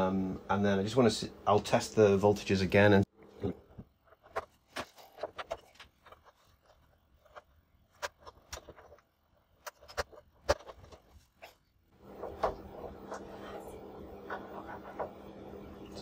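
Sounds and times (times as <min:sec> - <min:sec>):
clicks knocks and scrapes in computer case: 0:07.4 - 0:13.4.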